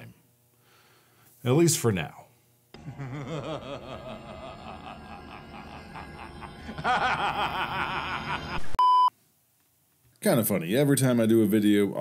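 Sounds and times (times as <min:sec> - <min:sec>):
man laughing: 0:02.8 - 0:08.8.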